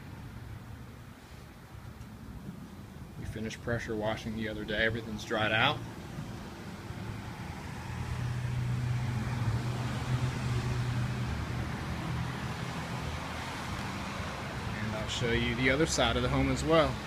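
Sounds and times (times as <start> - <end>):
vehicle engine hum passing by: 4.3 - 17.0.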